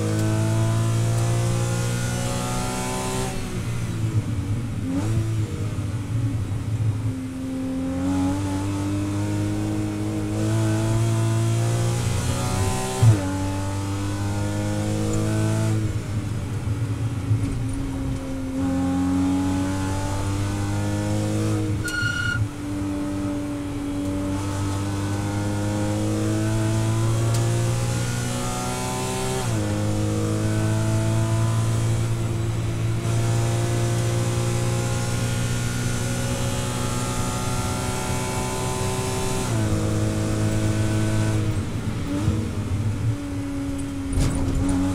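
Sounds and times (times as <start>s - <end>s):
car engine revving hard: 7.8s - 15.9s, 18.5s - 22.4s, 23.0s - 43.1s
short beep: 21.8s - 22.4s.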